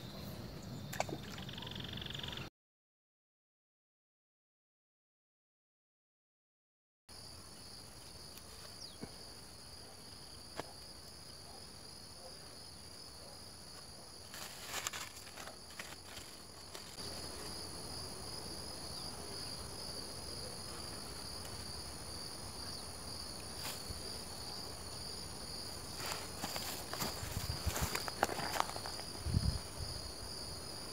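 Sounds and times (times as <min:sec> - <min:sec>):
insect chirring in grass: 0:14.3 - 0:18.0, 0:22.6 - 0:30.5.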